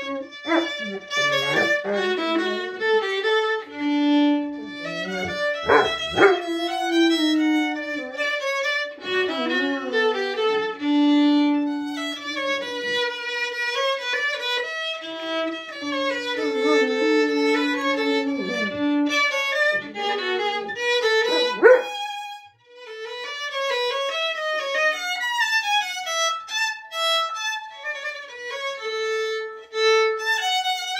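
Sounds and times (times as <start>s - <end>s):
violin melody: 0.0s - 30.9s
dog howling: 0.4s - 2.9s, 4.6s - 8.4s, 9.3s - 10.5s, 15.8s - 19.0s, 19.7s - 22.0s.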